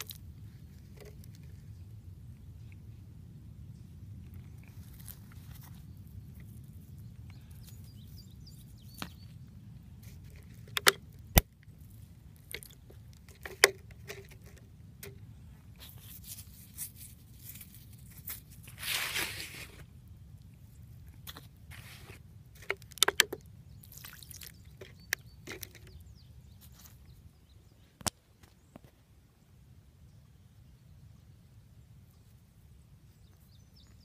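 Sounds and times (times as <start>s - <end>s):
low steady rumble: 0.0s - 23.8s
stone crunching scrape in gravel: 15.8s - 19.9s, 21.2s - 22.2s
sharp clicks of stones: 21.2s - 26.0s.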